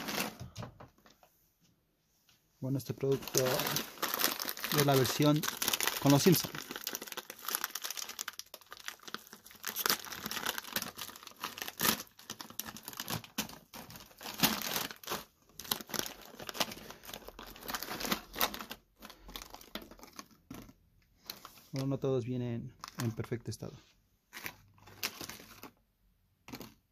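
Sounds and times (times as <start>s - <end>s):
plastic bag crinkling: 2.8s - 22.0s, 24.3s - 25.8s, 26.5s - 26.9s.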